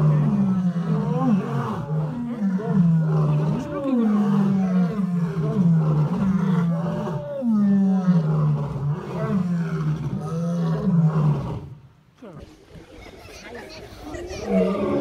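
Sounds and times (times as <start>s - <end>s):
lion roaring: 0.0s - 11.8s.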